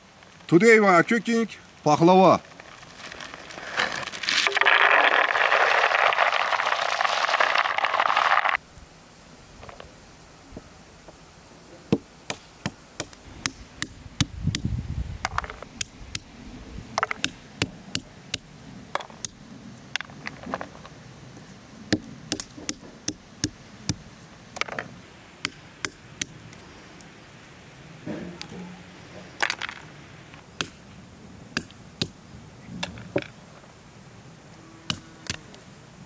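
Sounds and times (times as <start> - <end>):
walnuts cracking on stone: 2.5 - 8.6.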